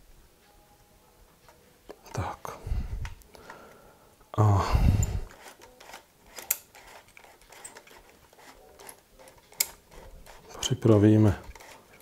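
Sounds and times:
camera knob clicks: 0:05.0 - 0:10.4, 0:11.4 - 0:12.0.

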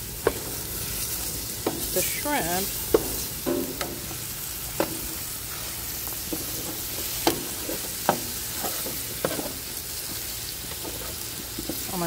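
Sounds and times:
vegetables sizzling on a pan: 0:00.0 - 0:12.0
spatula scraping a pan: 0:04.8 - 0:12.0.

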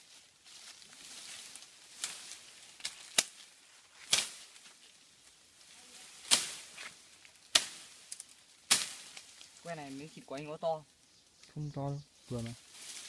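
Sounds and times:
machete chopping sapling: 0:02.8 - 0:03.4, 0:04.0 - 0:04.5, 0:06.2 - 0:09.3.

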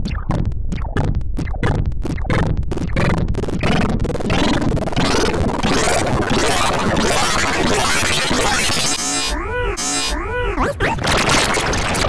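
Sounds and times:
distorted looped voice clip: 0:00.0 - 0:12.0
harsh noise: 0:00.0 - 0:12.0.

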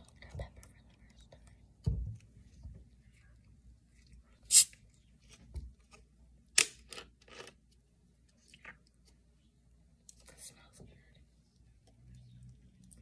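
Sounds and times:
soda bottle cap hissing open: 0:04.5 - 0:04.7.

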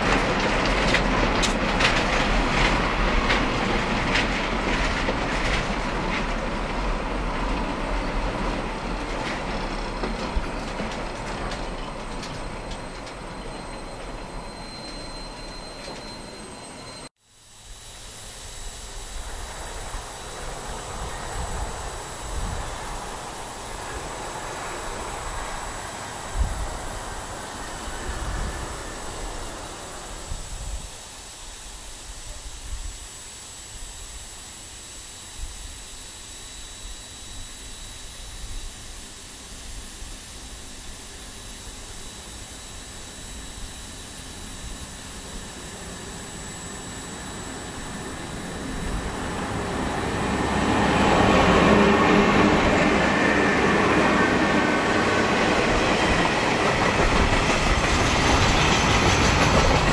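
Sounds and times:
freight train rolling past: 0:00.0 - 0:17.1, 0:18.0 - 0:31.8, 0:40.4 - 0:59.9
high wheel squeal: 0:09.7 - 0:17.1
steady hiss: 0:17.2 - 0:59.9.

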